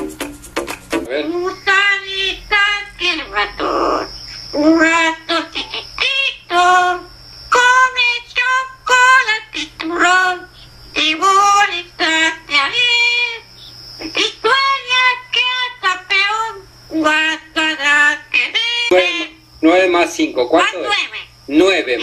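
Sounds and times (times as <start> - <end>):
parrot singing: 1.1 - 13.5, 14.1 - 19.4, 20.6 - 21.3.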